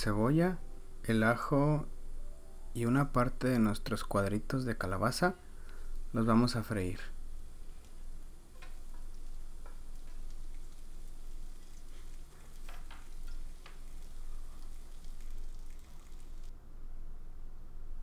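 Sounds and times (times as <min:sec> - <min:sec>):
garlic and onion sizzling in oil: 0:06.8 - 0:16.5.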